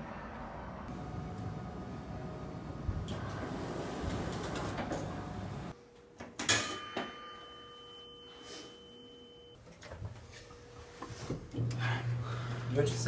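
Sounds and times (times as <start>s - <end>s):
elevator chime ding: 6.5s - 9.6s.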